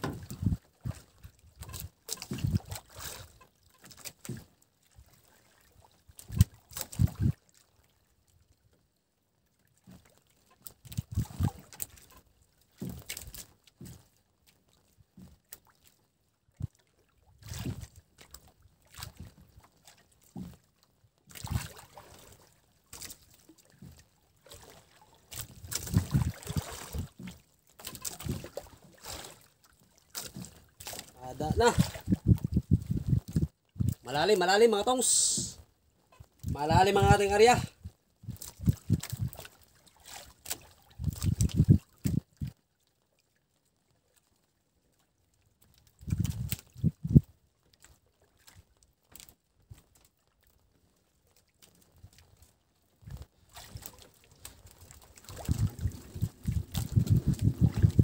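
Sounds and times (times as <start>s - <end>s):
knocks and thumps on boat: 0.0s - 4.6s, 6.2s - 7.3s, 10.9s - 14.1s, 25.3s - 28.9s, 30.2s - 34.0s, 55.2s - 58.0s
water lapping against boat hull: 0.0s - 58.0s.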